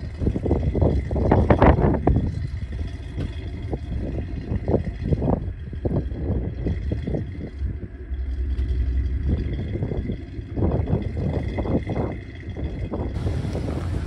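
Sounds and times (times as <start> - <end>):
buggy engine revving: 13.1 - 14.0.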